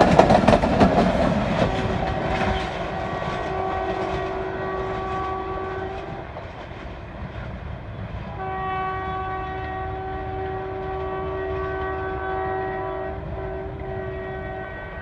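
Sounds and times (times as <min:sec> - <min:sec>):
low rumble of train: 0:00.0 - 0:15.0
locomotive horn blast: 0:01.6 - 0:06.3, 0:08.3 - 0:15.0.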